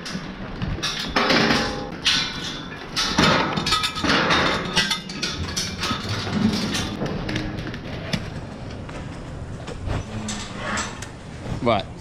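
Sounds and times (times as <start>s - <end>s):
steel gates clanking: 0.8s - 7.0s.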